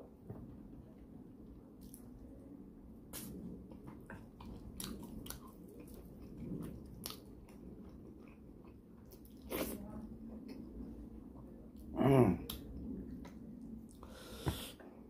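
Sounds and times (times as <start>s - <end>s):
person chewing: 3.1s - 9.8s.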